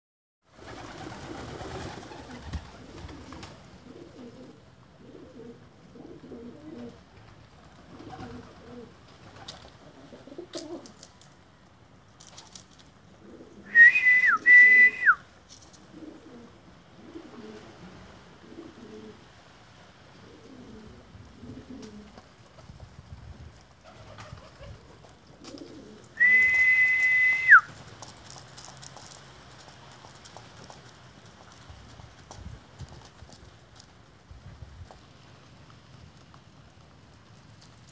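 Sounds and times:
pigeons cooing: 0.6s - 11.1s, 13.1s - 13.8s, 15.7s - 19.4s, 20.1s - 22.2s, 23.8s - 26.6s
loud high whistle: 13.7s - 15.2s, 26.2s - 27.7s.

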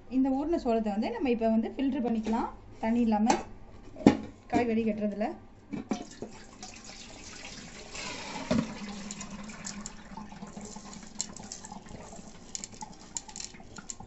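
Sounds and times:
water pouring into metal strainer: 6.1s - 14.0s.

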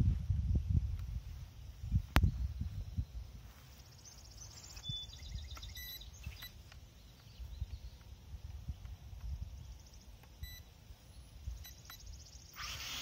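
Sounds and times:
wind on microphone: 0.0s - 3.6s.

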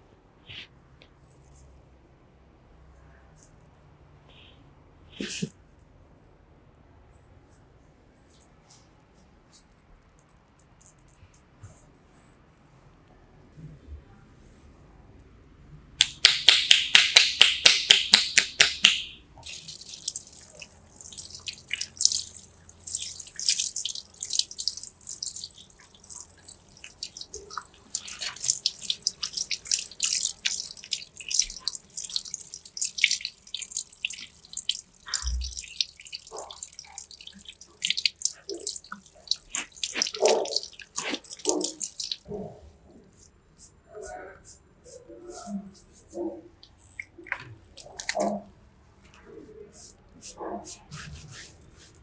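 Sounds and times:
shower sprayer water spattering: 16.1s - 42.3s.

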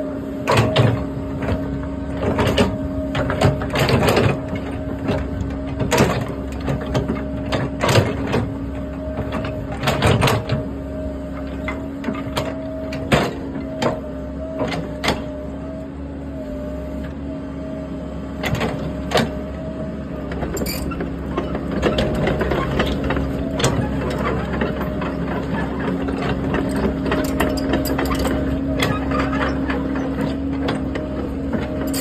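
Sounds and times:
excavator diesel engine humming: 0.0s - 32.0s
steel track links clattering: 20.6s - 21.0s, 27.1s - 28.5s.

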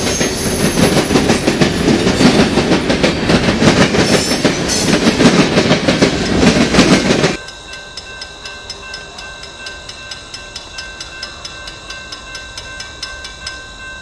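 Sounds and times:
freight train wheels clacking: 0.0s - 14.0s
level crossing bell ringing: 7.4s - 14.0s.

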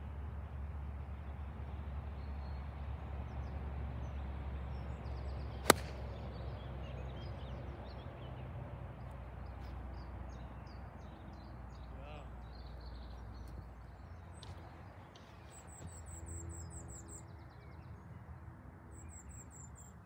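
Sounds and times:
low outdoor background noise: 0.0s - 20.0s
golf club striking ball: 5.6s - 6.2s.

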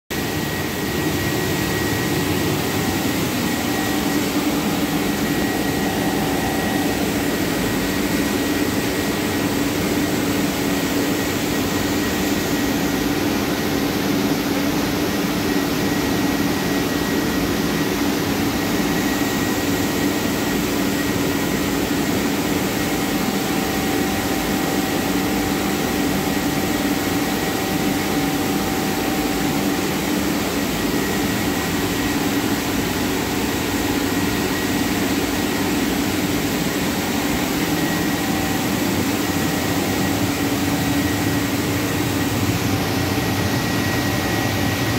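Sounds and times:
constant low hum: 0.2s - 16.0s
faint high whine: 0.2s - 44.9s.

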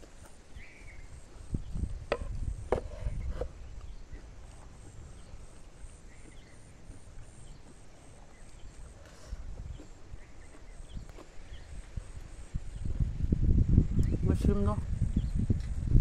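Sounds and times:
person chewing: 9.4s - 11.5s.

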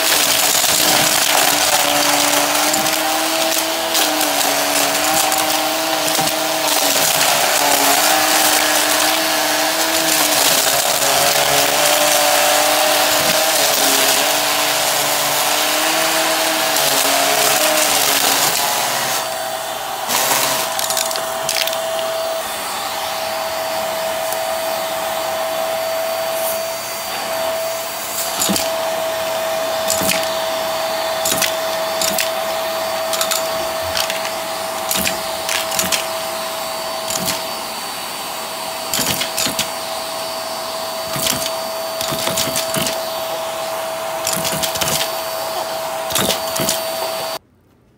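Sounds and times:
small pieces clicking up vacuum wand: 0.0s - 19.3s, 20.1s - 22.4s, 28.2s - 29.2s, 29.8s - 30.4s, 31.0s - 36.2s, 37.0s - 37.6s, 38.9s - 39.8s, 41.0s - 43.1s, 44.2s - 45.2s, 46.1s - 46.9s
stick vacuum whining: 0.0s - 47.4s.

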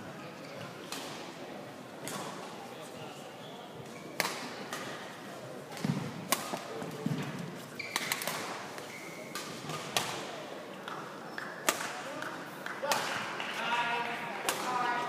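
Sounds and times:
shoe squeaks on court: 7.7s - 9.3s.

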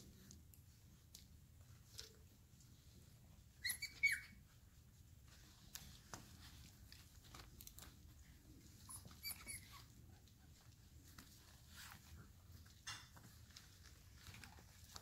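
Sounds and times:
puppies scuffling: 0.0s - 15.0s
puppies squealing: 3.5s - 4.5s, 8.8s - 10.0s.

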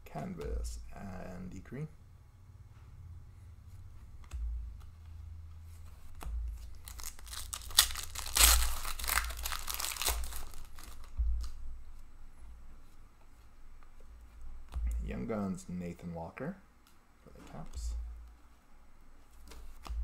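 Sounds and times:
foil wrapper tearing and crinkling: 6.7s - 11.1s.

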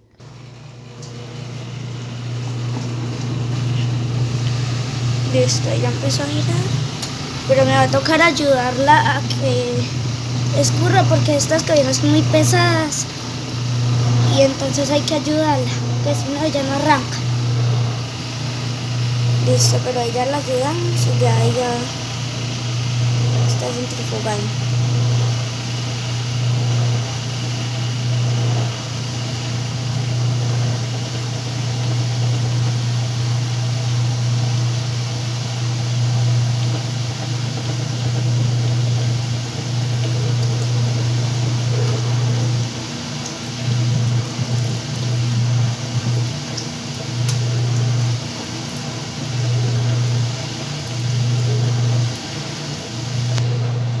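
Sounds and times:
washing machine spinning: 0.0s - 54.0s.

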